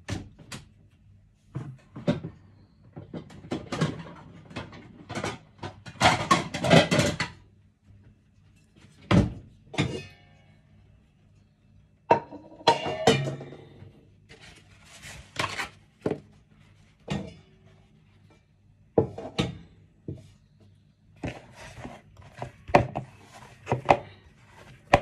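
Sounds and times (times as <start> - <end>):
kitchenware knocking and clinking: 3.1 - 7.4, 9.1 - 10.2, 12.1 - 14.0, 17.0 - 17.7, 18.9 - 20.2.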